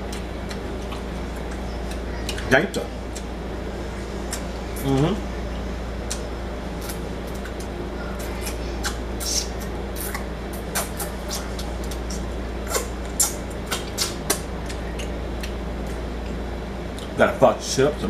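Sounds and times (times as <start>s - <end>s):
steady low hum: 0.0s - 18.0s
mouth smacking while eating: 4.2s - 5.1s, 6.0s - 16.4s.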